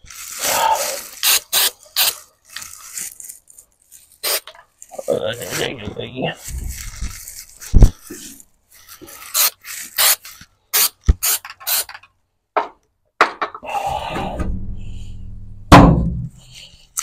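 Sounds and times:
hissing spray bursts: 0.4 - 2.2, 9.3 - 11.9
sharp knock: 13.9 - 16.5.

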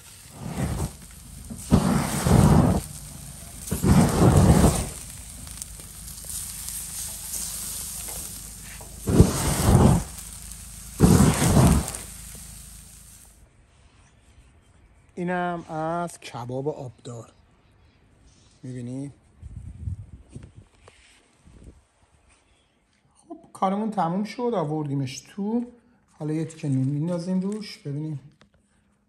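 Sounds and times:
wind rumbling on microphone: 0.0 - 13.2, 19.4 - 20.8
meat sizzling over charcoal: 0.0 - 13.4.

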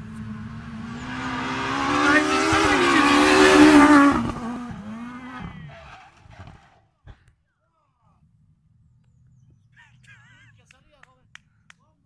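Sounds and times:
rally car passing at full throttle: 0.0 - 6.9.

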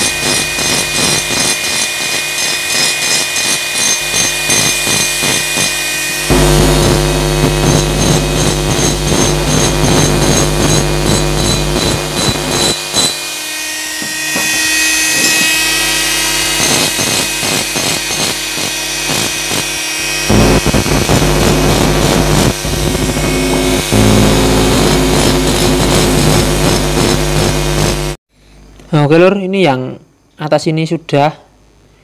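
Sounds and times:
mini grinder whining on metal: 0.0 - 28.1.

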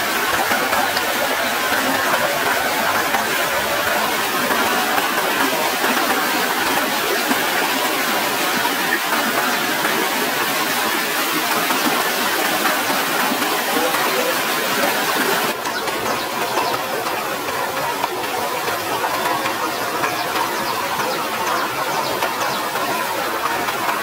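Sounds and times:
waterfall rushing over rocks: 0.0 - 24.0.

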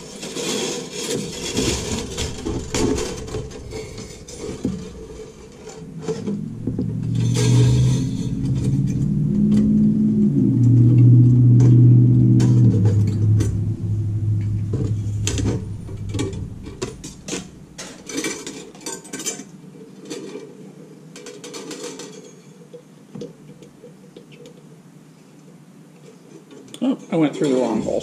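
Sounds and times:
wire rattling on metal grid: 0.1 - 8.9
loud low hum: 1.4 - 18.4.

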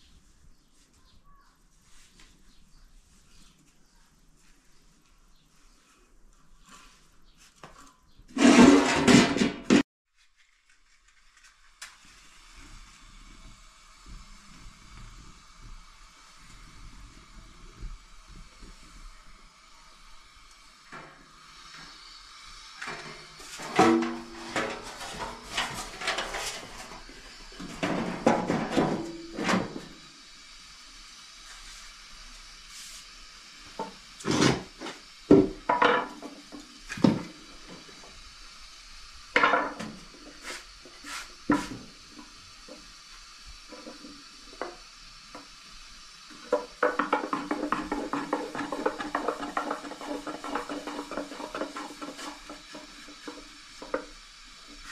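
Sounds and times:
metal bowl and pans clattering: 8.4 - 9.8, 22.8 - 27.0, 46.4 - 54.0.

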